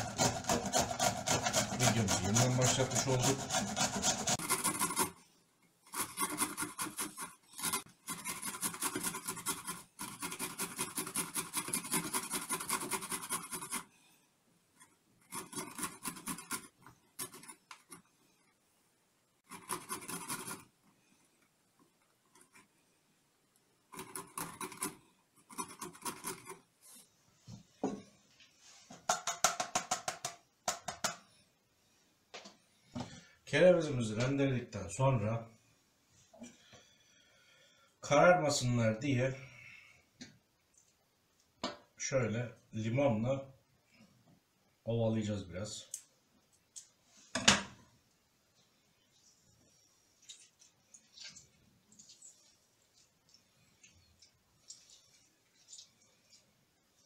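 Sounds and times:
grating on a metal hand grater: 0.0s - 5.2s, 5.9s - 13.9s, 15.2s - 18.0s, 19.5s - 20.7s, 23.9s - 26.6s.

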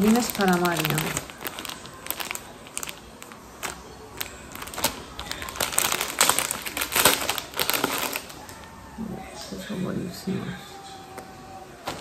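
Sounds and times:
plastic packaging crinkling: 0.0s - 8.7s, 11.8s - 12.0s.

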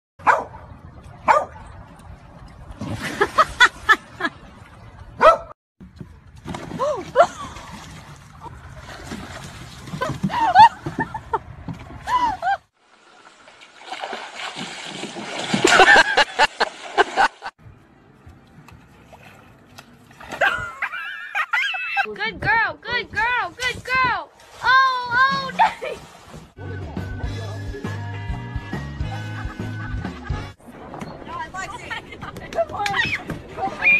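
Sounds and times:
dog barking: 0.2s - 0.6s, 1.3s - 1.6s, 5.2s - 5.5s
water splashing: 0.7s - 5.3s, 6.0s - 17.6s, 18.7s - 21.2s, 23.0s - 26.6s.

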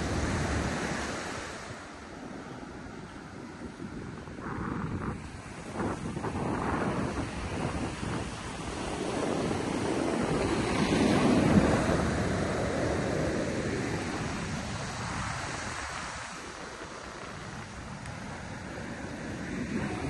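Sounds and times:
ocean wave breaking: 0.0s - 20.0s.

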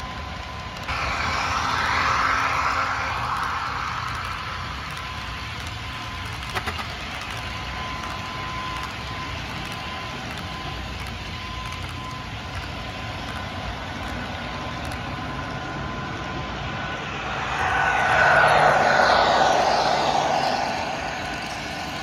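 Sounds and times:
thin high tone: 16.6s - 22.0s.

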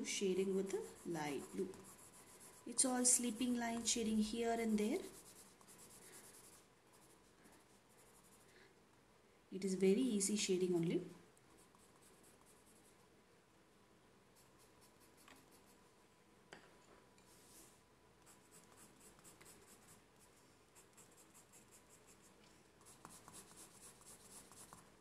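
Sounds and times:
pencil scratching on paper: 0.4s - 8.4s, 14.4s - 15.8s, 18.2s - 24.9s.

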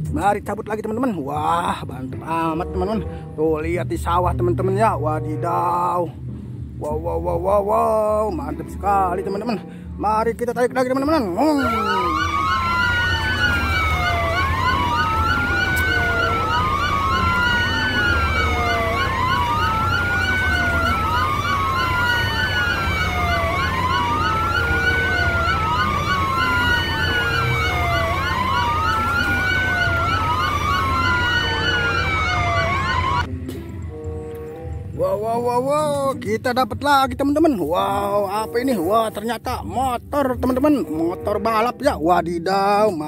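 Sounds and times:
second siren pattern: 11.1s - 33.3s
electronic siren wailing: 11.2s - 33.3s.

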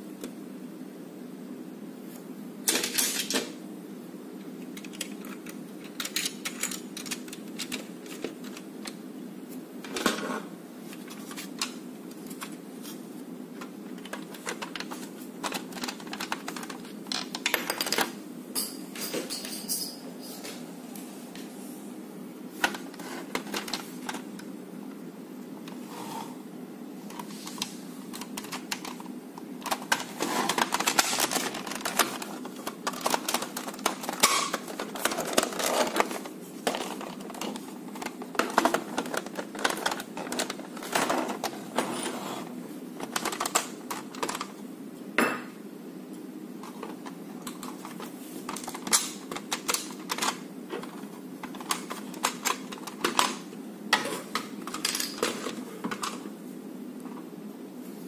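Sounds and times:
plastic parts clicking and clattering: 2.7s - 3.6s, 4.7s - 9.0s, 13.6s - 18.1s, 22.6s - 24.5s, 27.1s - 41.9s, 43.0s - 44.6s, 46.6s - 56.2s.

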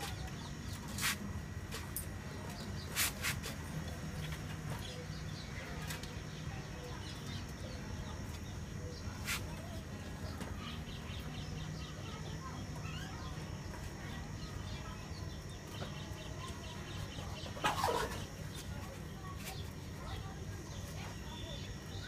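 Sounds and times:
chickens clucking: 15.6s - 19.7s.

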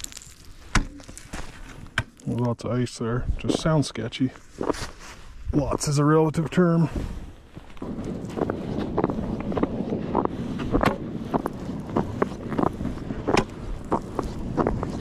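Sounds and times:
footsteps on ice: 0.0s - 2.4s, 4.4s - 5.2s, 7.5s - 15.0s
sled scraping over ice: 7.8s - 15.0s.

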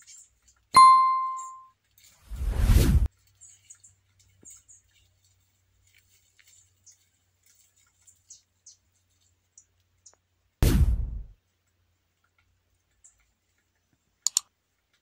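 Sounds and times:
high-pitched chirps and ticks: 0.0s - 1.8s, 7.8s - 10.3s.

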